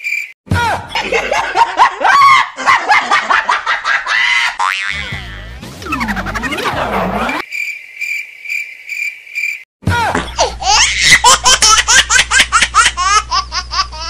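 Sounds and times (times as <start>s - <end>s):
high-pitched laughter: 0.8s - 7.4s, 10.4s - 14.0s.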